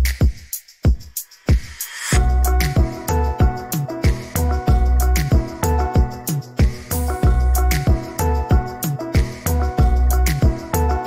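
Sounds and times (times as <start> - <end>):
deep kick drum: 0.1 - 10.7
held keyboard notes: 2.2 - 11.0.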